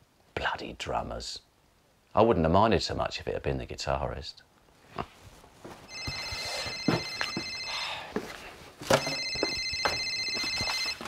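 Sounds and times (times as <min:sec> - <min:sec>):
telephone electronic trill ring: 0:05.9 - 0:07.8, 0:09.0 - 0:11.0.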